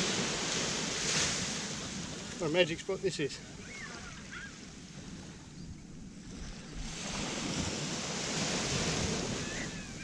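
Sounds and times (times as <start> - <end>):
small waves washing on sand: 0.0 - 5.5, 6.1 - 10.0
wind rumble on microphone: 3.5 - 10.0.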